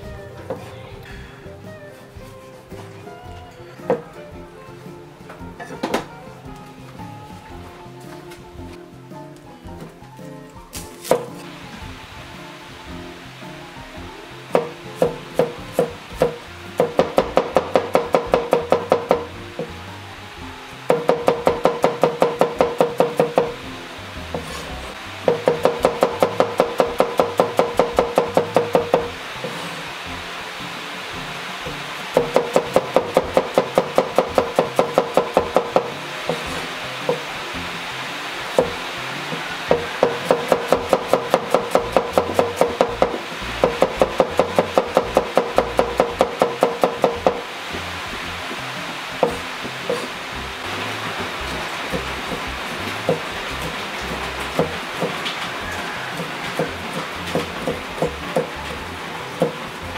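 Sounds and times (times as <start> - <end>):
cleaver chopping on board: 25.3 - 29.1, 32.2 - 37.2.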